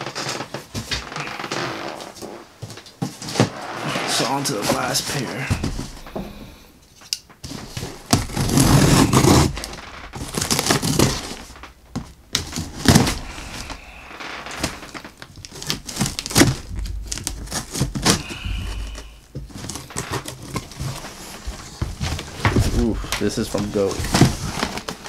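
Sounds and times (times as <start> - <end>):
packaging rustling and crinkling: 0.0 - 25.0.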